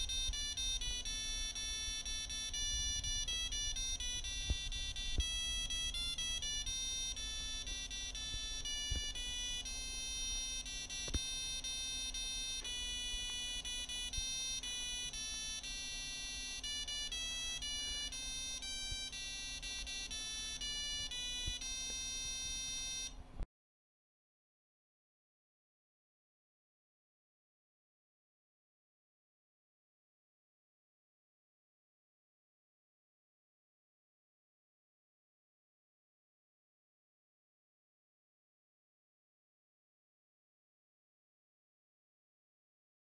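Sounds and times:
electronic beeping tune: 0.0s - 23.1s
steady low hum: 0.0s - 23.4s.

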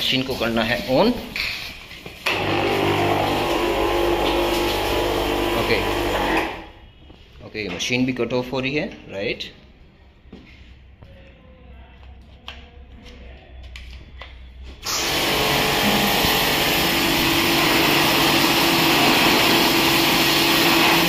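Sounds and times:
pressure washer low hum: 0.0s - 6.7s, 14.8s - 21.0s
pressure washer motor and pump: 0.0s - 6.8s, 14.8s - 21.0s
high-pressure water jet hissing: 0.4s - 6.7s, 14.8s - 21.0s.

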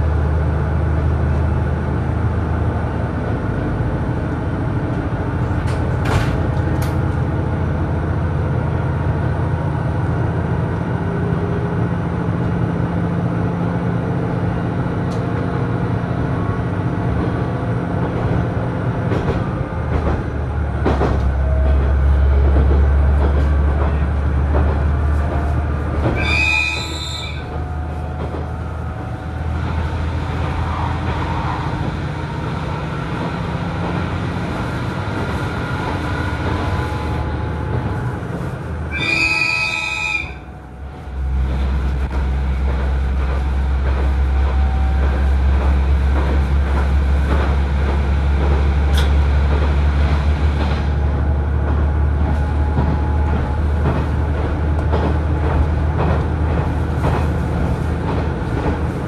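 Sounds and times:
diesel railcar engine drone: 0.0s - 59.0s
rail and wheel noise: 0.0s - 59.0s
train horn blasts: 38.9s - 41.3s, 44.2s - 45.5s.

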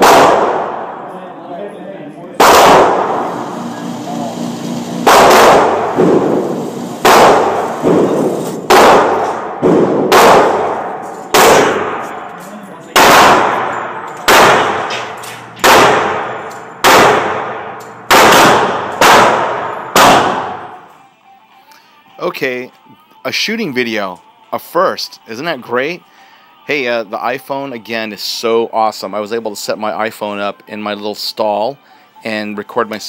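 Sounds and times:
pistol shots: 0.0s - 1.1s, 2.4s - 3.4s, 5.0s - 12.4s, 13.0s - 20.8s.

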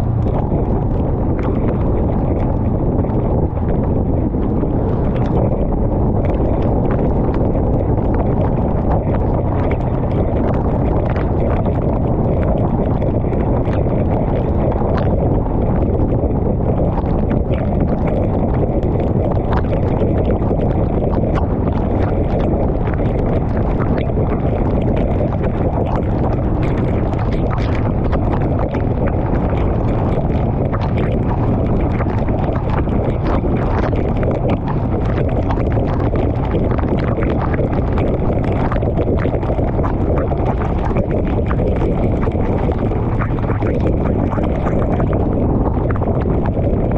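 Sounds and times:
motorcycle road noise: 0.0s - 16.6s, 26.1s - 36.5s
raindrops clicking on camera: 0.0s - 46.9s
wind rush: 0.0s - 46.9s.

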